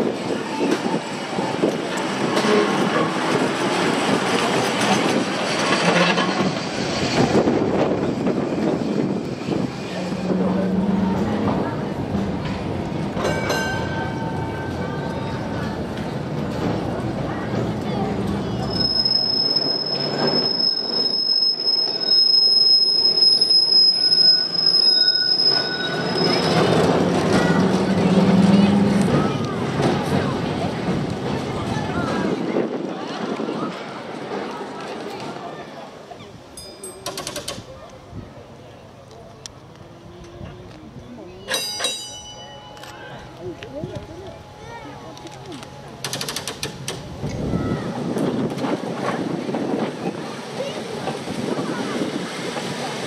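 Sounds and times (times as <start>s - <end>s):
tram wheels on rails: 0.0s - 53.0s
tram wheels squealing on track: 2.1s - 11.7s, 18.2s - 30.2s.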